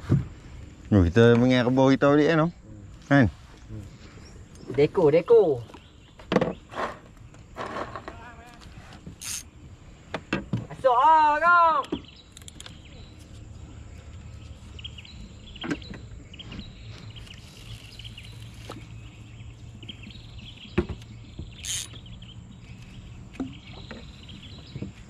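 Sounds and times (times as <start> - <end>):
bird chirps: 11.6 - 25.0.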